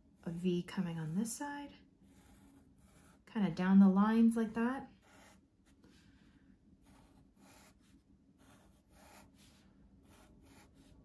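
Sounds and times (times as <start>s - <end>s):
low room hum: 0.0s - 11.0s
marker scratching on paper: 2.1s - 3.2s, 4.9s - 6.0s, 6.8s - 11.0s.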